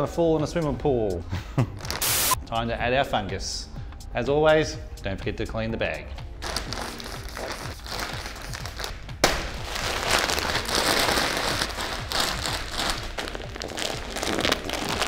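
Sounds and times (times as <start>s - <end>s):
spray bottle spraying: 2.0s - 2.4s
plastic bag crinkling: 6.4s - 15.0s.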